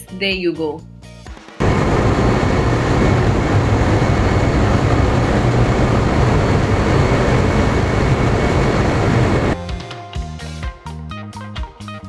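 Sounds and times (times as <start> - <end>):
deep hum: 1.6 - 9.6
engine room machinery din: 1.6 - 9.6.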